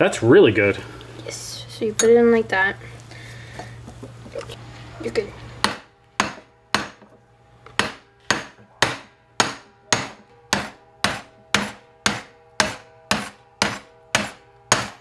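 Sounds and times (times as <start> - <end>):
hammer striking metal: 5.6 - 15.0.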